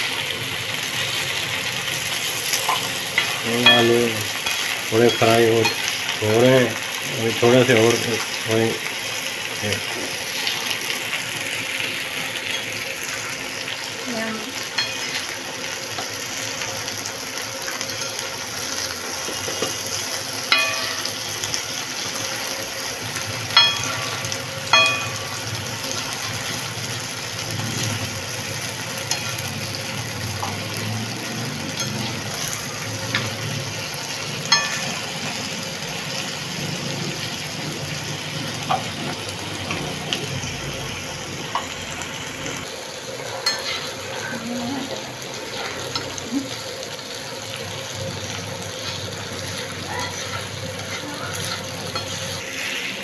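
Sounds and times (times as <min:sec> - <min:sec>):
potatoes sizzling in oil: 0:00.0 - 0:53.0
metal fork clinking on pan: 0:02.7 - 0:05.9, 0:14.8 - 0:15.2, 0:20.5 - 0:21.2, 0:23.6 - 0:25.3, 0:29.1 - 0:29.4, 0:34.5 - 0:35.0, 0:43.4 - 0:43.9.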